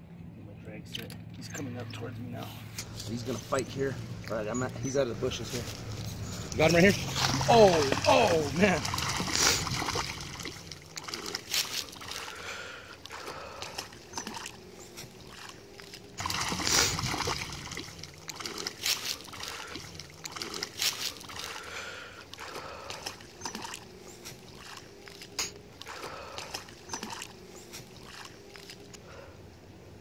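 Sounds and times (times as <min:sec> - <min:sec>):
fish splashing in water: 0:05.7 - 0:29.2.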